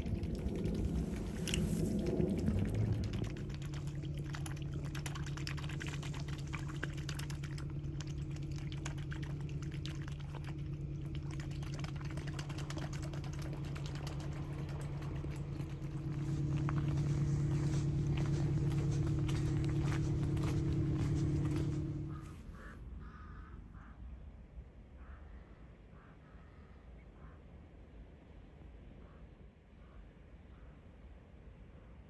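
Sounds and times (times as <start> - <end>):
swan splashing in water: 0.0 - 22.6
water lapping: 0.0 - 23.3
steady low hum: 0.0 - 32.0.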